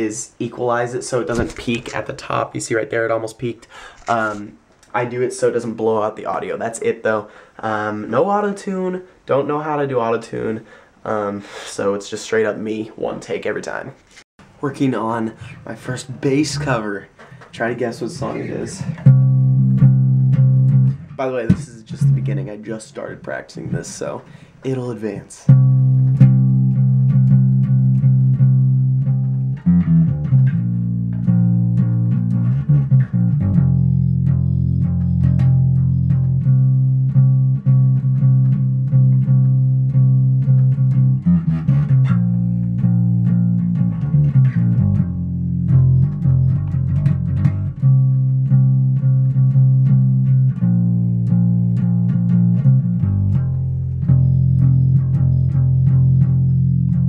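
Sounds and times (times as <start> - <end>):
electric bass guitar riff: 15.4 - 23.2, 25.5 - 57.0.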